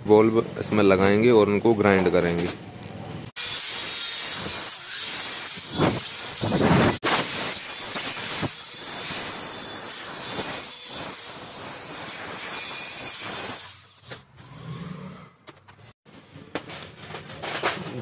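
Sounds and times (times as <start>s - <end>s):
wire brush grinder hissing: 3.4s - 14.1s.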